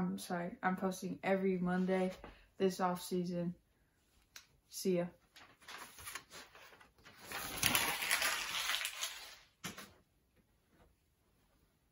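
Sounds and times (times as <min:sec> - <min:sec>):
rustling and shuffling: 0:05.2 - 0:11.9.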